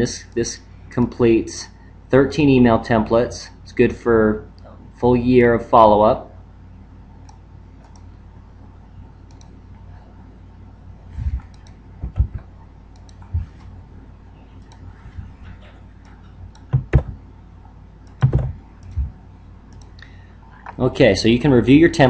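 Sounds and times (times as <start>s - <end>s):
low steady background hum: 0.0s - 22.0s
computer mouse clicks: 7.2s - 8.1s, 9.2s - 9.6s, 11.4s - 13.7s, 14.6s - 17.2s, 18.0s - 20.8s
keyboard key presses: 11.4s - 13.6s, 16.0s - 17.2s, 18.1s - 19.9s.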